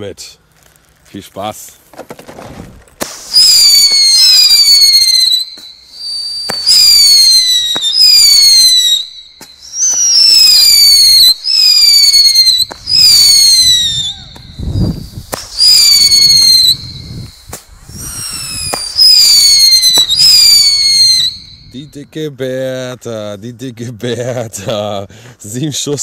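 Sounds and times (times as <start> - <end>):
firework launch pop: 3.0 - 4.6, 6.4 - 8.0, 12.6 - 13.4, 14.0 - 21.4
shrill firework whistles: 3.0 - 22.0.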